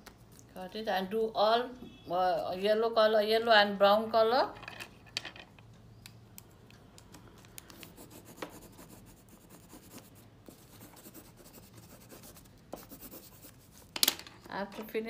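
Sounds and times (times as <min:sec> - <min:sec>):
colored pencil scratching on paper: 0:07.8 - 0:13.9.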